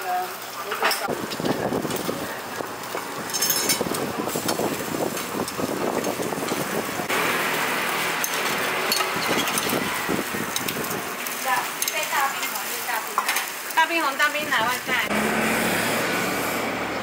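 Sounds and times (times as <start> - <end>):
food sizzling on a griddle: 0.0 - 16.8
metal spatulas clinking and scraping: 3.3 - 3.9, 8.2 - 9.8.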